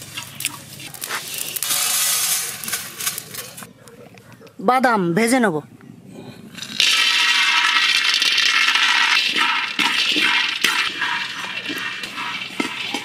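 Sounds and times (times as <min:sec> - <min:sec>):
peanuts clattering into metal wok: 0:01.2 - 0:03.6, 0:06.6 - 0:13.0
spatula stirring nuts: 0:06.8 - 0:13.0.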